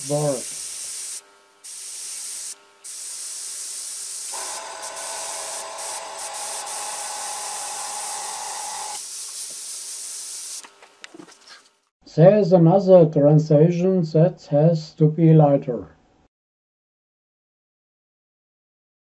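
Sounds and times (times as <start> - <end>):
airbrush hissing: 0.0 - 10.6.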